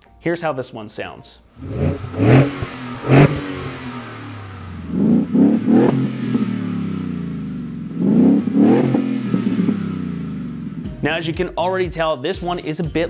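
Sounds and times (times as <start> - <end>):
car engine idling: 1.6 - 11.0
engine throttle revs: 1.6 - 11.0.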